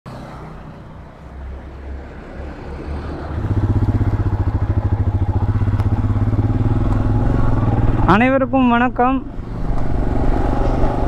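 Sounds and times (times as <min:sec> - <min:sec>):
motorcycle engine running: 0:03.2 - 0:11.0.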